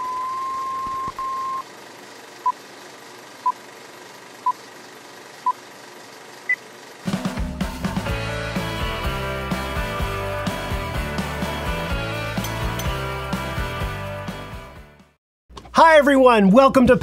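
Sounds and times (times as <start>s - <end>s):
short beeps: 0.0s - 1.6s
music: 7.1s - 15.2s.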